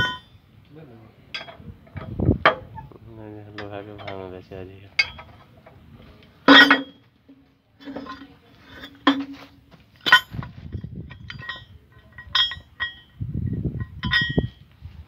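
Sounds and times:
wrench clinking on metal: 1.3s - 2.6s, 5.0s - 5.4s, 10.0s - 13.2s, 13.8s - 14.6s.

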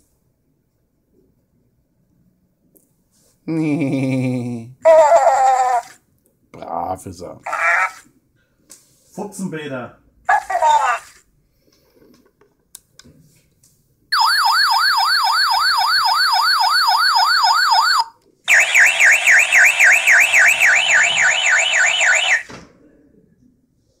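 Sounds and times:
toy repeating siren higher pitched: 14.1s - 22.5s
electronic warbling siren: 14.2s - 22.5s.

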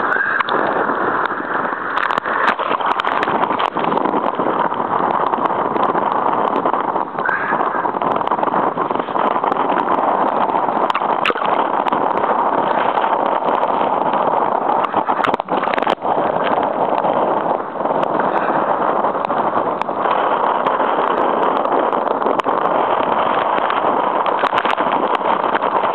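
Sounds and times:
surf breaking: 0.0s - 25.9s
wind buffeting microphone: 0.0s - 25.9s.

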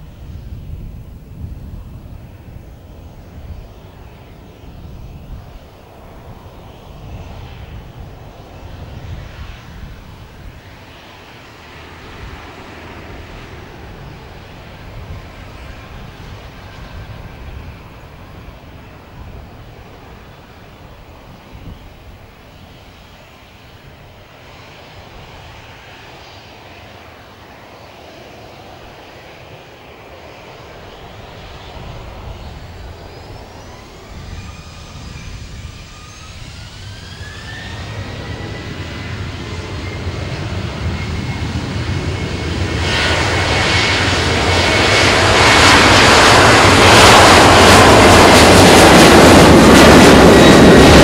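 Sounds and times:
jet engines spooling up: 2.1s - 51.0s
rising engine whine: 24.9s - 51.0s.

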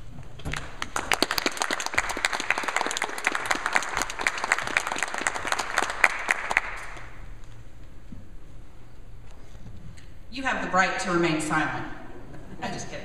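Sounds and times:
audience applauding: 0.5s - 7.2s.

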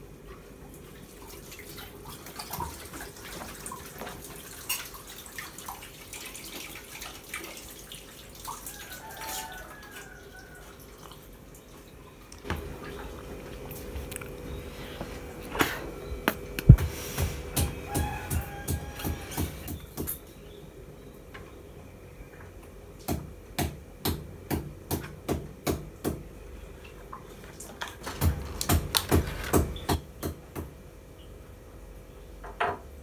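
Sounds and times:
water dripping and splashing: 0.3s - 14.4s.

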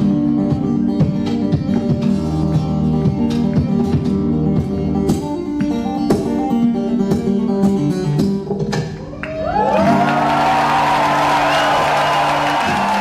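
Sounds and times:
acoustic guitar playing: 0.0s - 13.0s
audience whooping and cheering: 9.0s - 13.0s.

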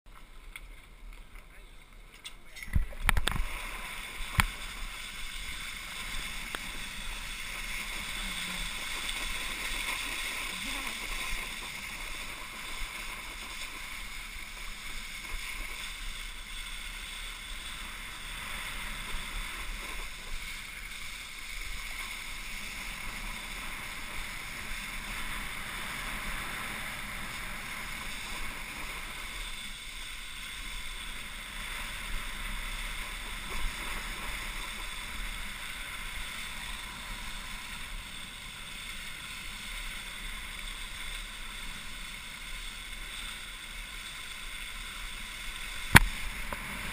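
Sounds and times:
wind buffeting camera: 2.2s - 16.4s
water spray hissing: 2.5s - 46.9s.

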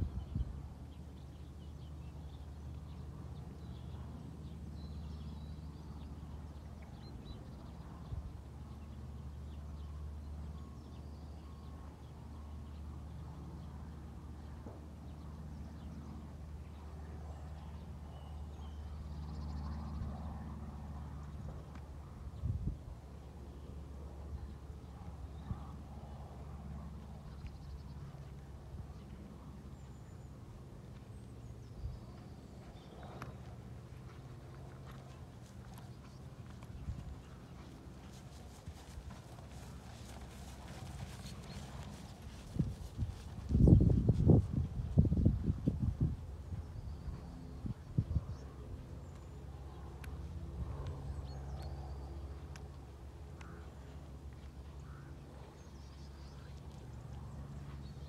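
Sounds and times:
small birds chirping: 27.1s - 50.2s
muffled hoofbeats on turf: 31.9s - 46.4s
wind buffeting microphone: 38.2s - 48.8s.

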